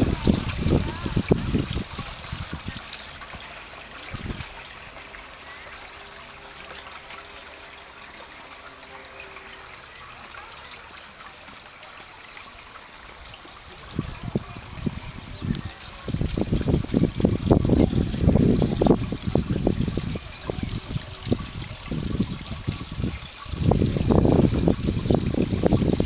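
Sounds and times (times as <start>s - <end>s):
water trickling: 0.0s - 26.0s.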